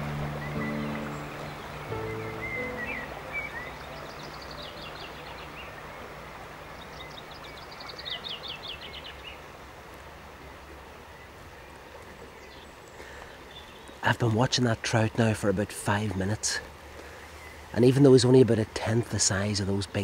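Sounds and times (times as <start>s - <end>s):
flowing water rushing: 0.0s - 20.0s
songbird singing: 0.0s - 20.0s.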